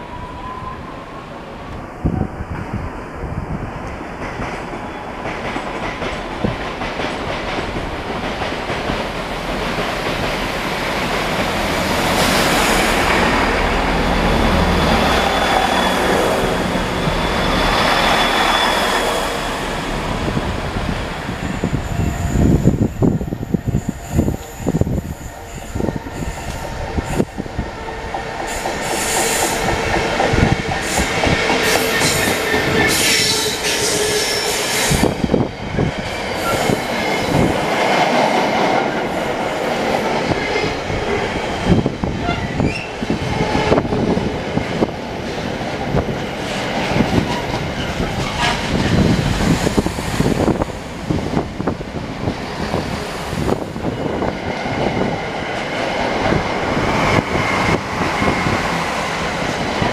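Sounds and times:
diesel locomotive engine: 0:00.0 - 0:59.9
diesel train passing close: 0:00.0 - 0:59.9.

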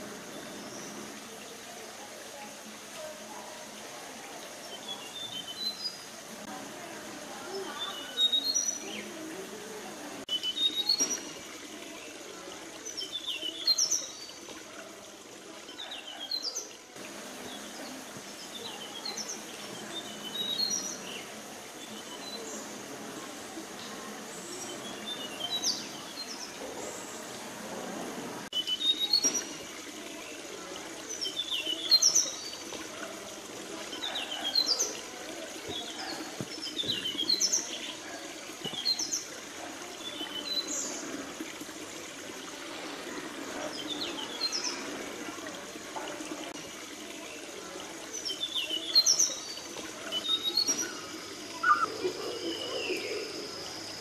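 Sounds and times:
birds chirping and whistling: 0:50.2 - 0:53.4.

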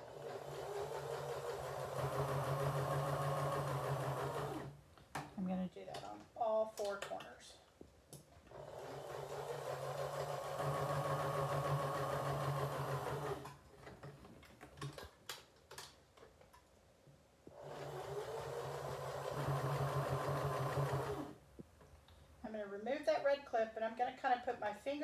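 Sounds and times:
sewing machine stitching: 0:00.0 - 0:04.8, 0:08.5 - 0:14.0, 0:17.5 - 0:21.4.

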